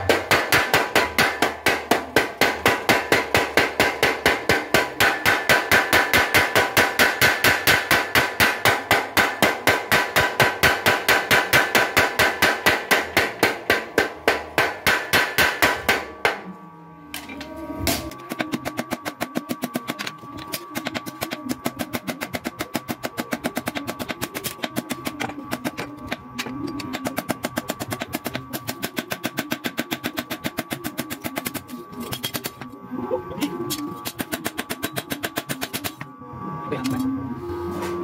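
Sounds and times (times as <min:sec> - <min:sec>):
power hammer striking hot steel: 0:00.0 - 0:16.4.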